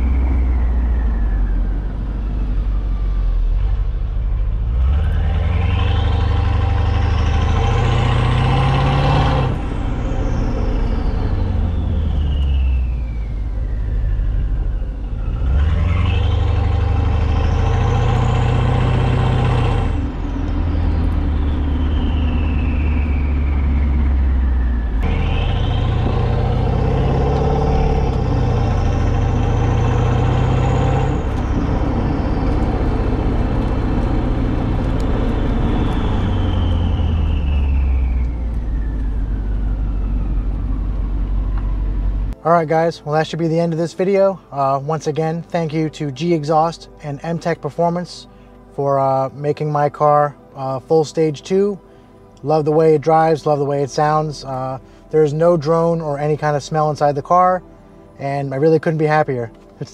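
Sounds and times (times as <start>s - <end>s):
high whine climbing in pitch: 0.0s - 42.4s
car engine revving: 0.0s - 44.0s.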